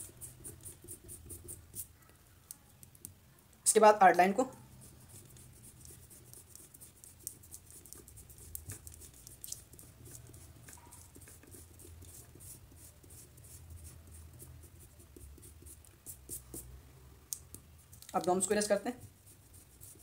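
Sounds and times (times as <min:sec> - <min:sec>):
eraser rubbing on paper: 0:18.6 - 0:20.0.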